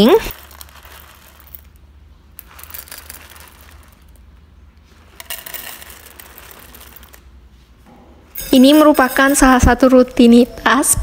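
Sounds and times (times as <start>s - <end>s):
plastic bag crinkling: 0.0s - 7.4s
kibble rattling into metal bowls: 2.4s - 4.2s, 5.0s - 7.2s.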